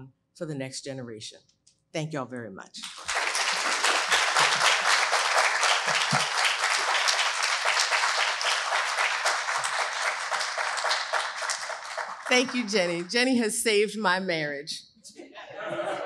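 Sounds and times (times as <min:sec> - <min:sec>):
audience applauding: 0:02.8 - 0:13.3.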